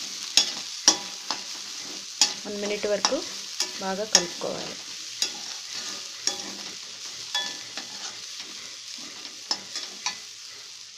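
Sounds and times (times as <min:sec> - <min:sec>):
spatula scraping a metal pan: 0:00.0 - 0:10.8
food sizzling: 0:00.0 - 0:10.9
spatula clinking on pan: 0:00.3 - 0:01.4, 0:06.2 - 0:06.6, 0:07.3 - 0:08.0.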